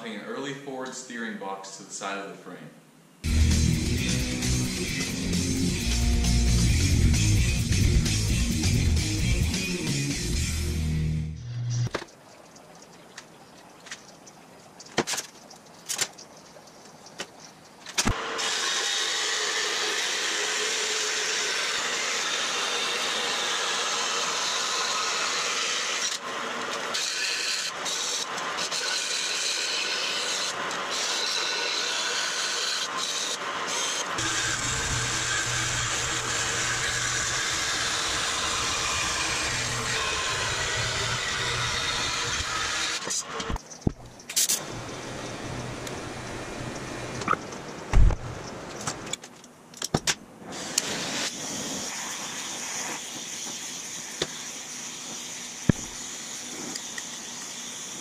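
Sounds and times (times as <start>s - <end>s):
bandsaw cutting steel: 18.0s - 43.6s.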